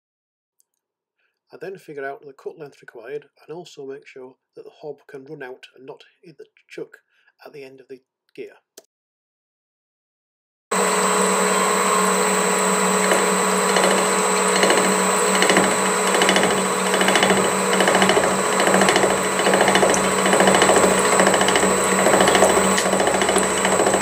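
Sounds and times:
milling machine hum and whine: 10.7 - 24.0
rhythmic machine pulse: 10.7 - 24.0.

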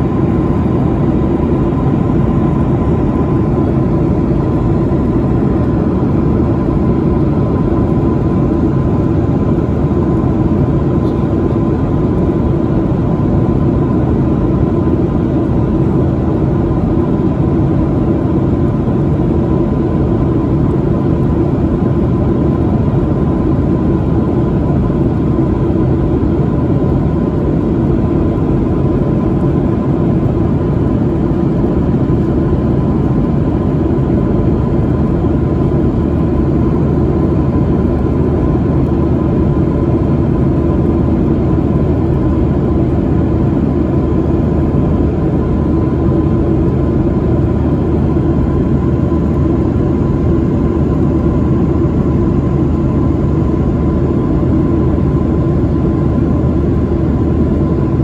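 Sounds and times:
jet engines droning: 0.0 - 58.0.

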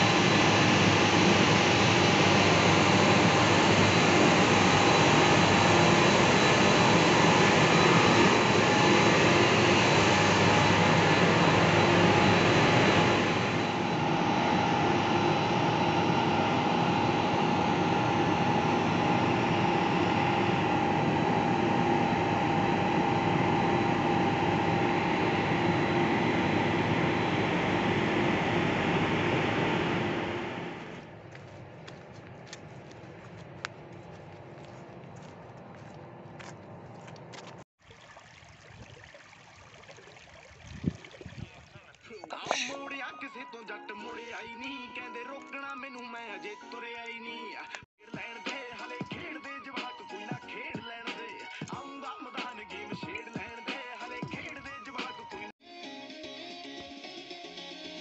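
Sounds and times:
pump machinery droning: 0.0 - 42.9
faint footsteps: 31.0 - 37.6.

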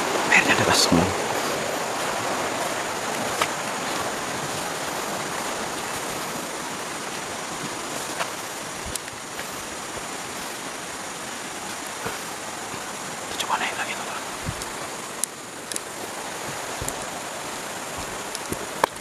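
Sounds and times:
fast-flowing stream rushing: 0.0 - 19.0.

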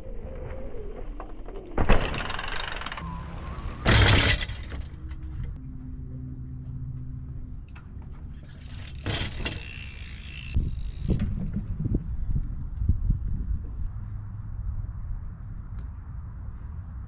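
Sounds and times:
rough tyre and frame noise: 0.0 - 17.0
bike landing thud: 3.6 - 4.9, 8.6 - 11.7.

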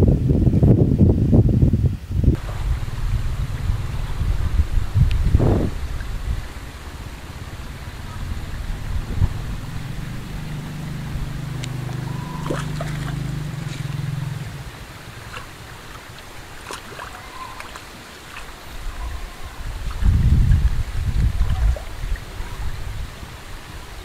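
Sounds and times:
low engine drone: 2.3 - 18.0
water running over a weir: 2.4 - 24.0.

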